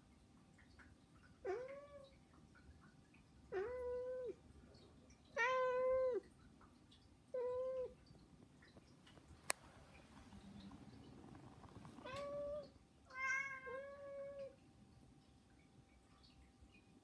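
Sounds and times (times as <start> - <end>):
cat meowing: 1.4 - 2.1, 3.5 - 4.4, 5.4 - 6.2, 12.0 - 14.5.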